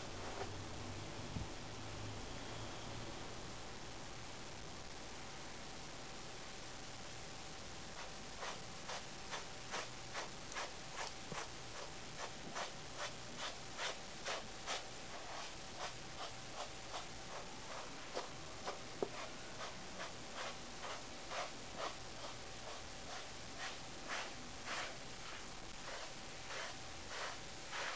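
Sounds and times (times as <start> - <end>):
brush rasping through cat fur: 8.0 - 27.9.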